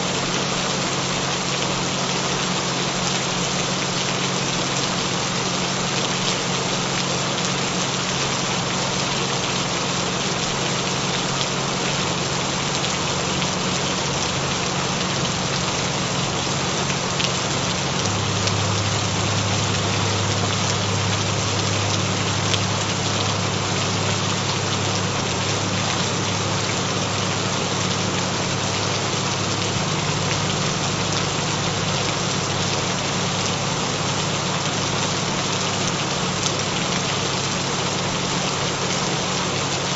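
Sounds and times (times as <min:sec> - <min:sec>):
gentle rain: 0:00.0 - 0:39.9
low humming tones: 0:12.8 - 0:34.8.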